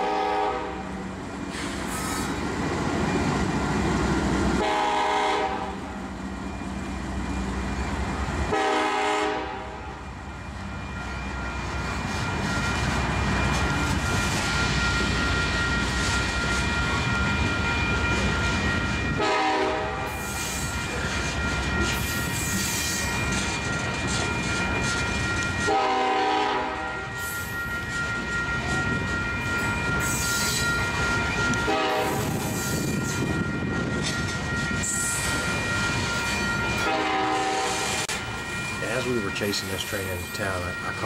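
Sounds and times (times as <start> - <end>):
locomotive horn blasts: 0.0 - 0.8, 4.5 - 5.8, 8.5 - 9.8, 19.2 - 20.1, 25.6 - 27.0, 31.6 - 32.4, 36.8 - 38.0
freight train rumbling past: 0.0 - 41.0.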